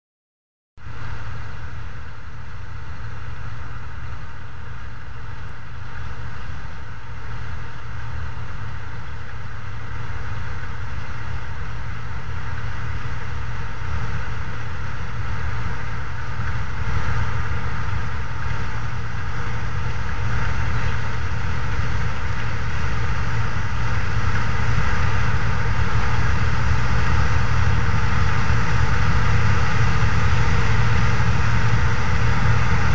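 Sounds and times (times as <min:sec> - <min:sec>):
combine harvester engine drone: 0:00.8 - 0:32.9.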